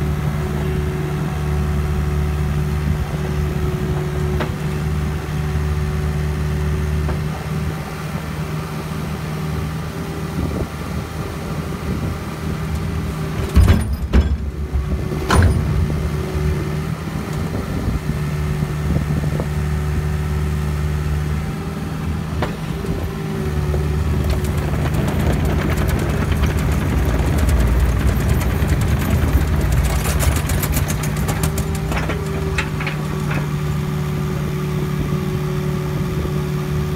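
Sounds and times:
excavator diesel engine running: 0.0 - 36.9
boulder banging into steel truck box: 13.4 - 16.6.

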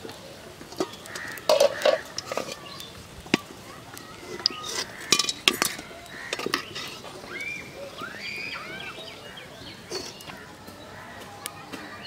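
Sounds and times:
birds chirping: 0.0 - 12.0
metal spoon clinking on wok: 4.4 - 6.9.

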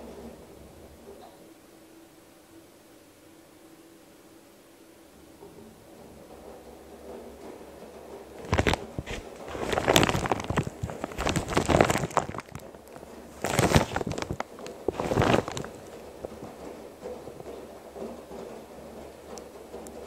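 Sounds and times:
laundry tumbling in washer drum: 6.0 - 20.0.

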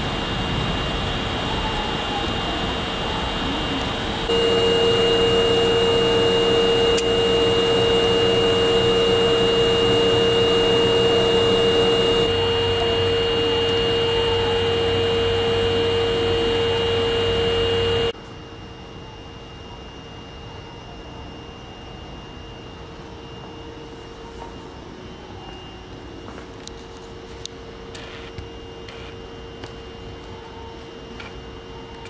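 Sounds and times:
subway train humming: 0.0 - 18.2
faint high whine: 0.0 - 32.0.

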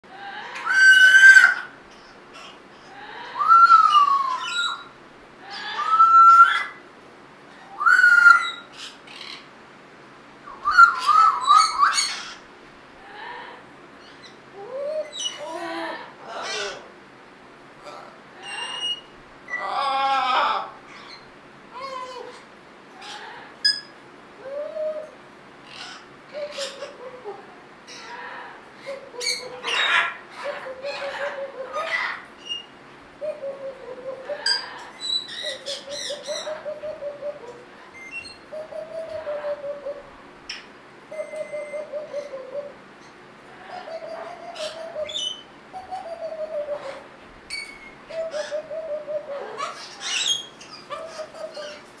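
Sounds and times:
high chirps and clicks: 23.6 - 24.0.

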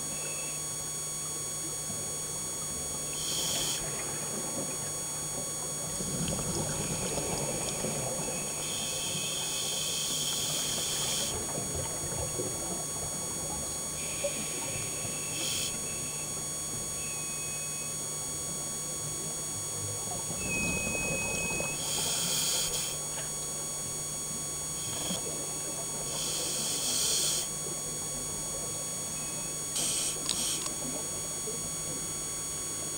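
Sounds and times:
steady electronic hum: 0.0 - 32.9
exhaled bubbles rushing: 3.9 - 8.6.

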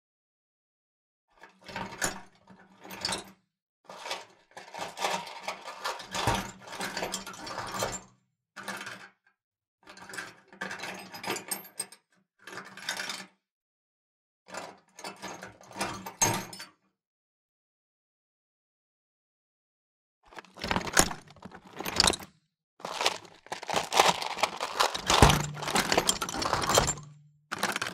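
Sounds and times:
tools clinking in metal toolbox: 20.6 - 27.9.

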